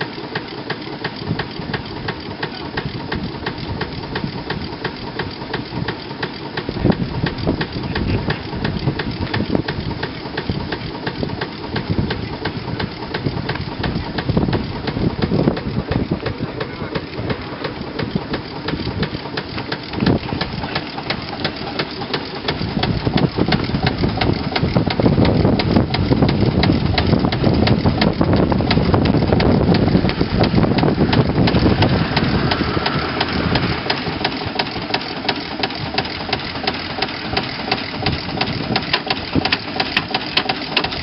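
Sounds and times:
steam engine chuffing: 0:00.0 - 0:41.0.

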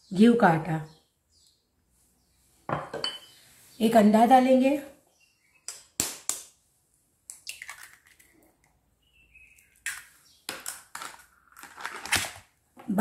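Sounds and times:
eggshell cracking: 0:05.7 - 0:06.6, 0:07.2 - 0:08.8, 0:09.4 - 0:12.4.

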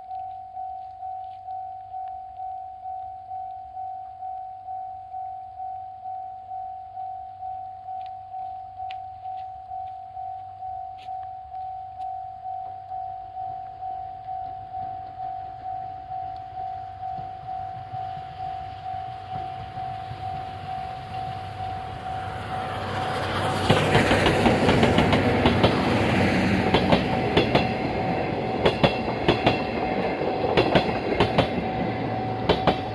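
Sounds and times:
level crossing warning bell: 0:00.0 - 0:32.9
steam train approaching: 0:16.7 - 0:32.9
train wheels clacking on rails: 0:17.4 - 0:32.9.

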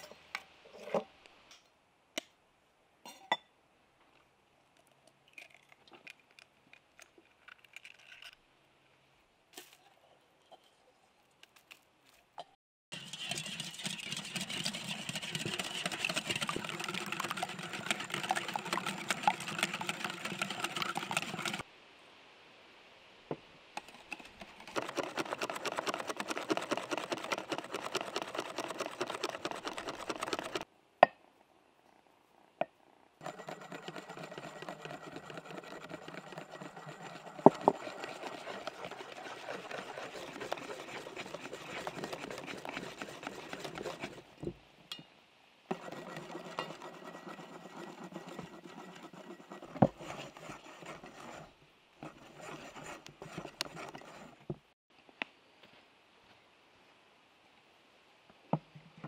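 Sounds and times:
whisk beating in metal bowl: 0:12.9 - 0:21.6, 0:23.8 - 0:30.6, 0:33.2 - 0:44.2, 0:45.7 - 0:51.4, 0:52.0 - 0:54.3.

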